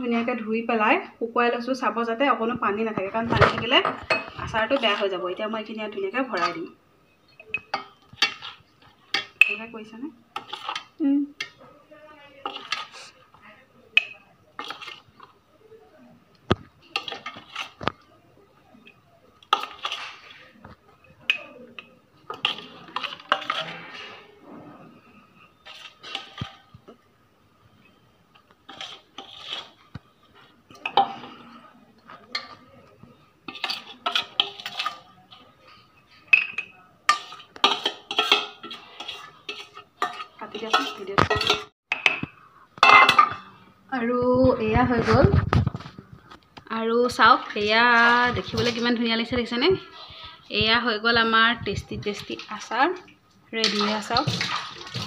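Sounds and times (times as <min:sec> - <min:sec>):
metal spoon scraping a bowl: 0:03.4 - 0:05.2, 0:06.2 - 0:11.6, 0:12.4 - 0:13.2, 0:14.0 - 0:15.3, 0:16.9 - 0:17.9, 0:19.4 - 0:26.8, 0:28.6 - 0:31.7, 0:33.4 - 0:41.7.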